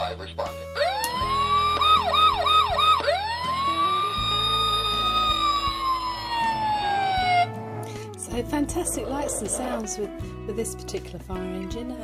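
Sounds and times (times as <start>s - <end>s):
toy fire engine electronic siren: 0.8s - 7.8s.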